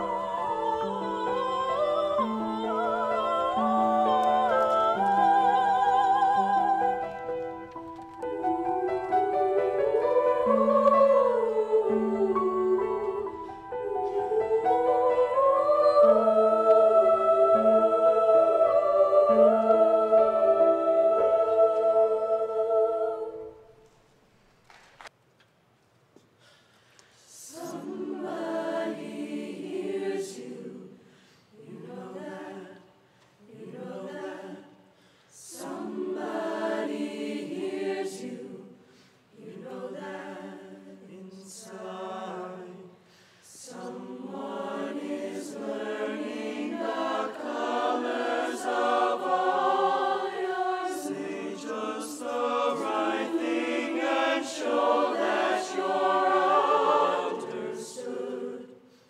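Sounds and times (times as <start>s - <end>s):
choir singing in harmony: 0.0s - 24.0s, 27.2s - 59.0s.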